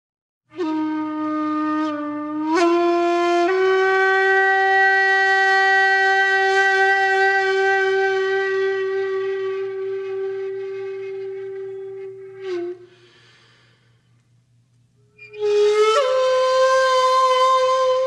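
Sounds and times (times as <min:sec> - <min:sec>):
breathy bamboo flute solo: 0:00.5 - 0:14.0, 0:15.2 - 0:18.0.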